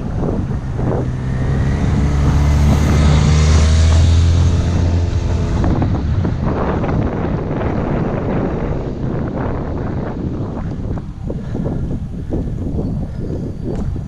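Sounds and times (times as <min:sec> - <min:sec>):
motorcycle engine passing: 0:00.0 - 0:10.5
wind rush on microphone: 0:00.0 - 0:14.0.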